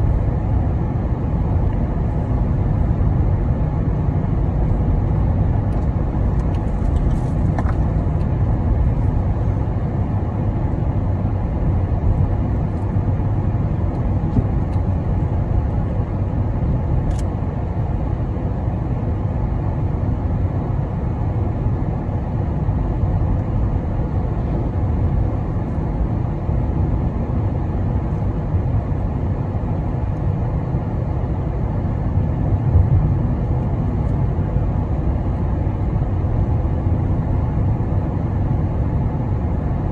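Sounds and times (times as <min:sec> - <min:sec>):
car road and engine noise: 0:00.0 - 0:39.9.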